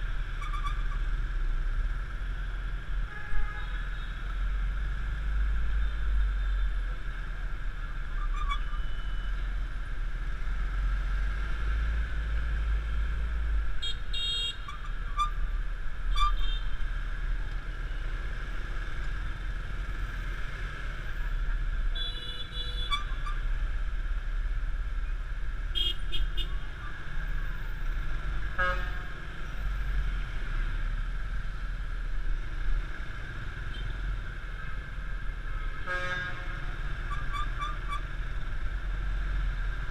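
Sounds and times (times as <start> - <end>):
vehicle horn beeps: 13.8 - 14.7, 22.0 - 23.1.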